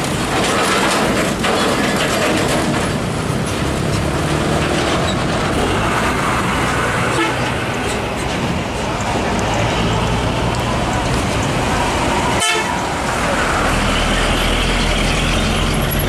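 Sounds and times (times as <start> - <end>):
clicks and rattles: 0.0 - 5.6
diesel trucks driving past: 0.0 - 16.0
tyre and road noise: 0.0 - 16.0.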